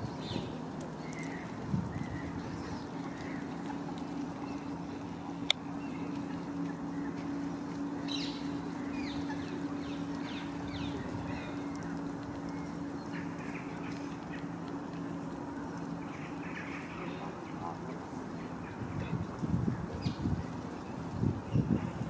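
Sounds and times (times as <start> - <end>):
steady low hum: 0.0 - 22.0
waterfowl calling: 1.2 - 18.8.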